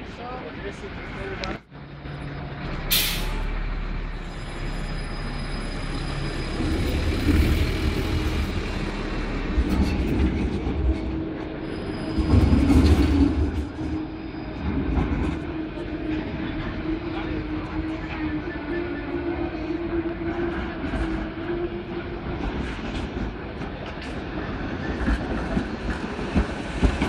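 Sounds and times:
tram wheels rumbling on rails: 0.0s - 27.0s.

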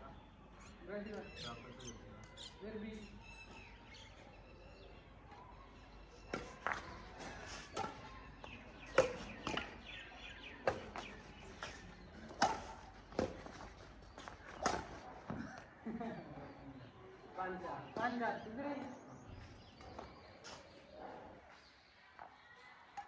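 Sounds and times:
rackets hitting shuttlecock: 7.6s - 8.1s, 8.8s - 9.9s, 10.6s - 15.4s.

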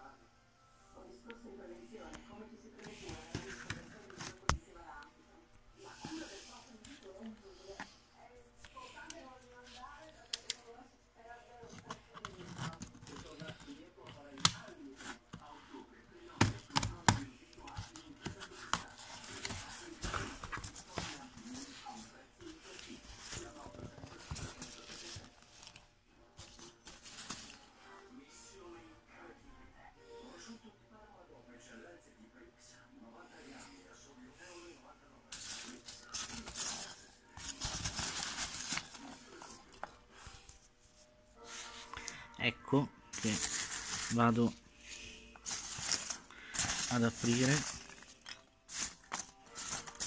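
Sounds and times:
paper rustling and tearing: 17.7s - 25.8s, 35.3s - 40.0s, 43.1s - 44.6s, 45.4s - 50.0s.

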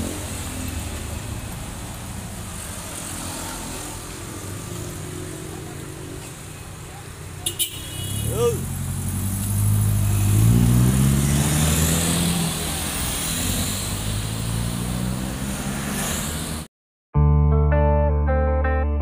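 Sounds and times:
passing motorcycle: 0.0s - 16.7s
street traffic: 0.0s - 16.7s
car engine pulling away: 8.5s - 16.7s
guitar music: 17.2s - 19.0s.

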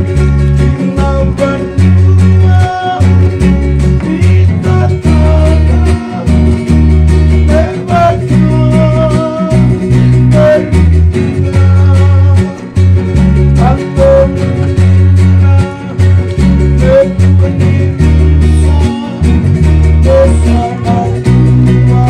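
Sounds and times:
electric bass notes: 0.0s - 22.0s
strummed guitar: 0.0s - 22.0s
voices singing: 3.9s - 6.6s, 7.2s - 12.8s.

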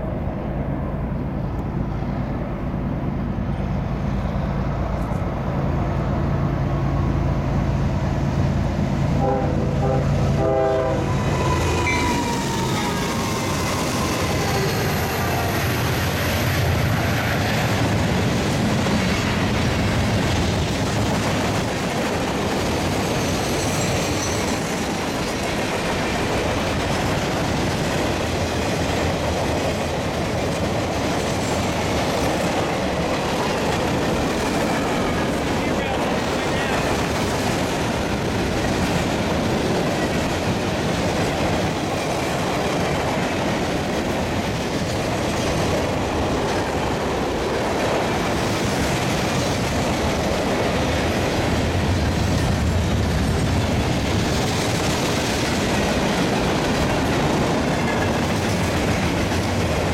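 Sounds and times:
diesel locomotive engine hum: 0.0s - 59.9s
train air horn blasts: 9.2s - 12.4s
wheels on rails clickety-clack: 11.4s - 59.9s.

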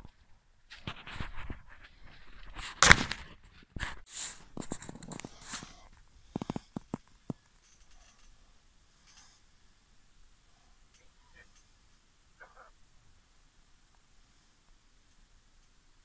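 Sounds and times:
rustling and handling noises: 0.0s - 9.5s.

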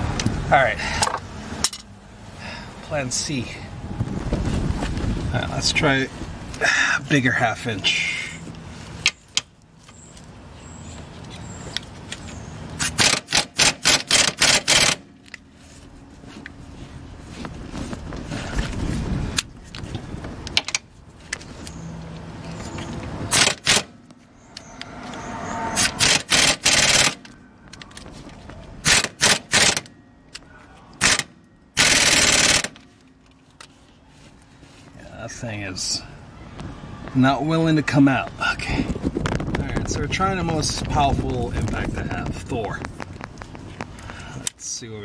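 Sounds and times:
impact wrench hammering: 12.9s - 15.0s, 23.3s - 23.9s, 25.8s - 27.3s.

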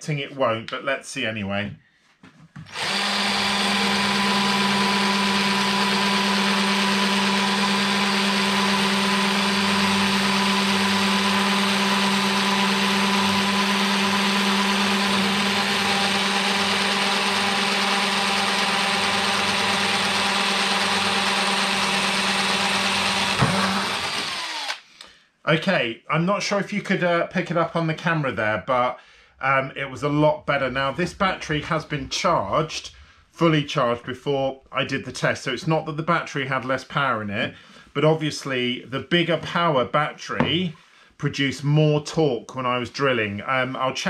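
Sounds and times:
cordless drill boring into wood: 2.7s - 24.8s.

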